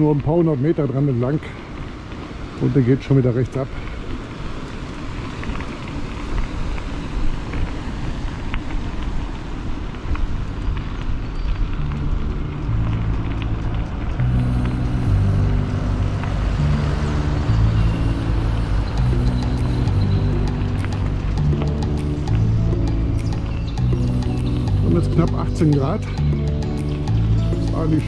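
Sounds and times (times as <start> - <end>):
bicycle rolling: 0.0 - 28.0
wind rumble: 0.0 - 28.0
music with stepping bass line: 11.8 - 28.0.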